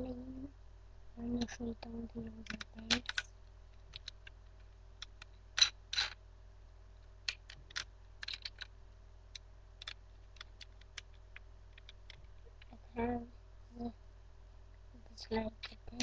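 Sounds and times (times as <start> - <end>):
plastic toy clattering: 2.4 - 3.3, 5.0 - 6.2, 7.3 - 8.7
plastic toy clicking and rattling: 2.4 - 3.3, 7.3 - 8.7.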